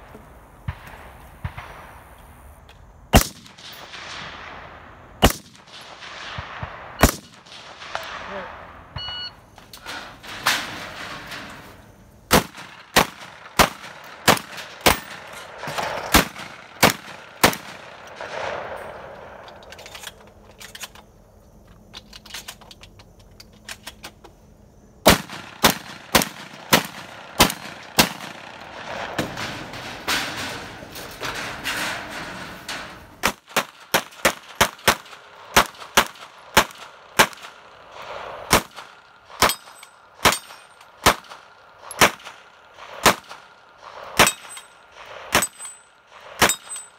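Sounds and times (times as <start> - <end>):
rifle gunshots: 3.1 - 9.0, 12.3 - 19.5, 25.0 - 30.8, 33.2 - 46.9.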